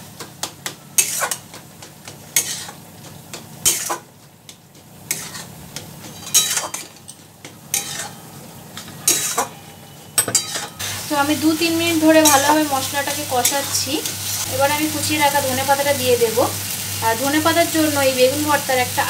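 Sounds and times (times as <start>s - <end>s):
soft sizzle: 0.0s - 19.0s
metal spatula scraping metal pan: 1.0s - 1.4s, 2.4s - 2.8s, 5.1s - 11.1s, 12.1s - 12.7s.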